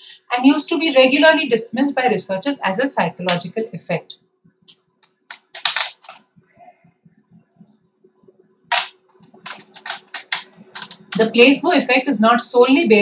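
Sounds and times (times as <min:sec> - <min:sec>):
faint tapping and clicking: 0:04.4 - 0:11.3.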